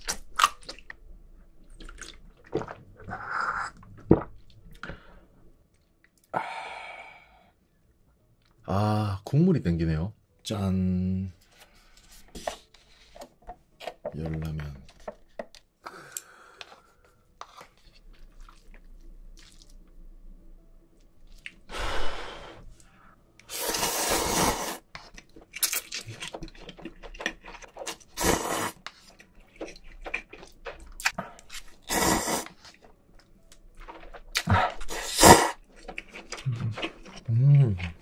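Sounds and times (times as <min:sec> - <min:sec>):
person slurping noodles: 0:02.6 - 0:03.8, 0:23.5 - 0:24.9, 0:27.8 - 0:28.8, 0:31.8 - 0:32.6, 0:34.4 - 0:35.6
chewing: 0:17.4 - 0:20.0, 0:25.0 - 0:31.8, 0:32.4 - 0:38.0.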